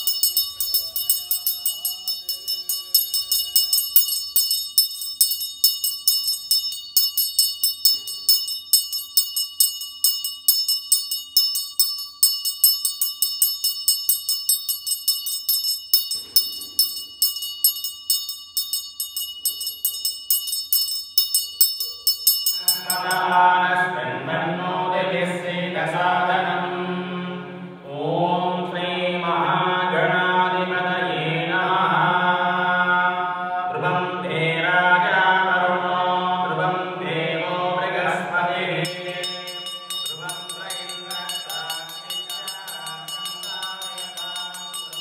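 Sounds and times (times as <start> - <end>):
person chanting: 0.0 - 9.0, 21.6 - 45.0
hand bell rung rapidly: 0.0 - 23.4, 38.8 - 45.0.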